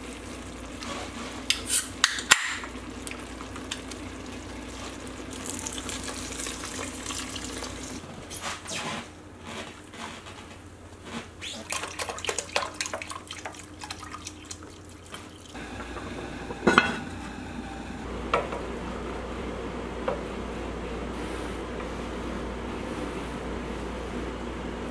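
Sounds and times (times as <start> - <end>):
liquid pouring and splashing into pot: 0.1 - 8.0, 11.6 - 15.6.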